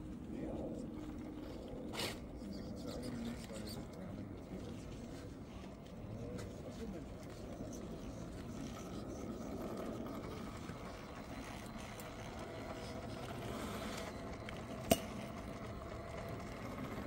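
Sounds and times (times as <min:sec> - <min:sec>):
toy car electric motor whining: 0:06.4 - 0:17.0.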